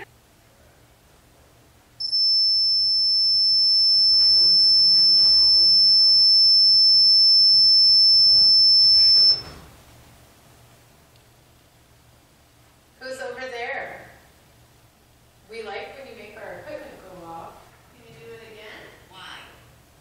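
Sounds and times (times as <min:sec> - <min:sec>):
alarm high-pitched continuous tone: 0:02.0 - 0:09.6.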